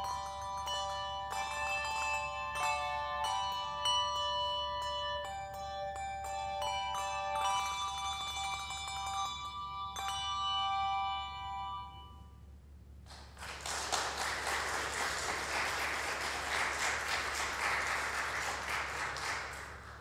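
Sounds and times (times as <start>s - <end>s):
handbells ringing chords: 0.0s - 12.4s
congregation applauding: 13.1s - 20.0s.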